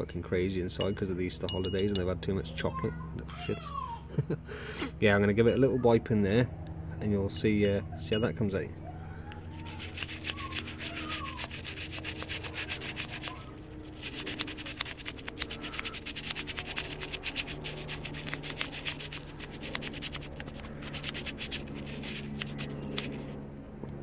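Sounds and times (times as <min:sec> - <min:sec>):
toothbrush scrubbing metal: 0:09.6 - 0:23.4.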